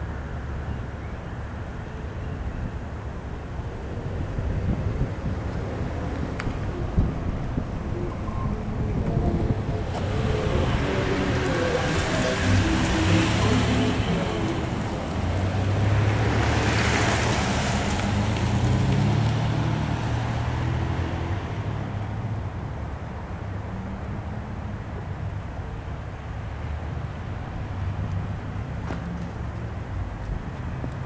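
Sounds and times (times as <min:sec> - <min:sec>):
rail cars rolling on track: 0:05.4 - 0:16.7.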